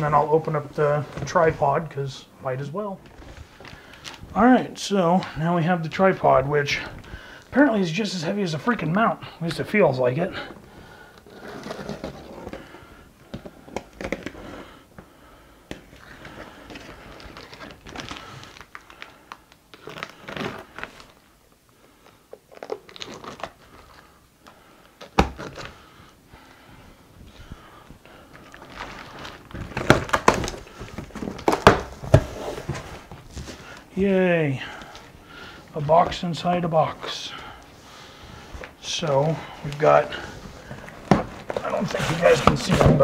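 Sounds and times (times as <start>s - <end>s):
cardboard flaps scraping and crinkling: 10.4s - 12.8s, 28.3s - 33.9s, 38.5s - 43.0s.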